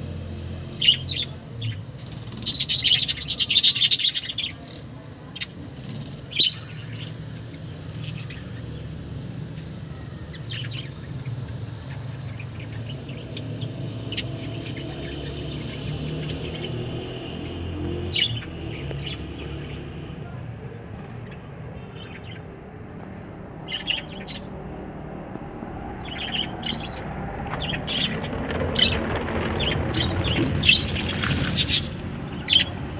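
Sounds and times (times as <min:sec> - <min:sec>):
budgerigars chirping: 0:00.8 - 0:04.6, 0:23.6 - 0:24.5, 0:26.0 - 0:27.0, 0:27.6 - 0:29.0, 0:29.6 - 0:32.8.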